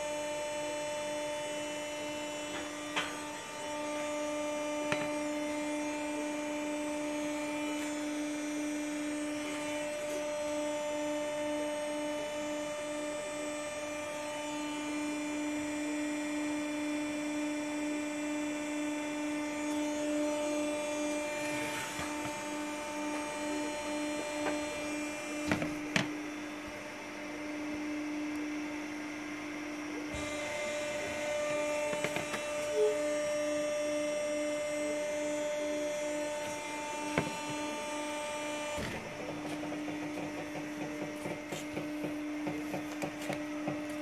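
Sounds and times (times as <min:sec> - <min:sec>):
roller machine humming: 0:29.4 - 0:33.9, 0:35.1 - 0:44.0.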